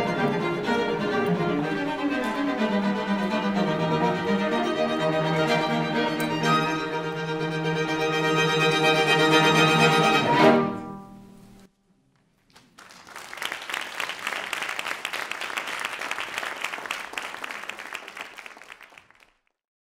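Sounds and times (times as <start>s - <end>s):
string quartet chord: 0.0s - 11.7s
audience applauding: 12.3s - 19.5s.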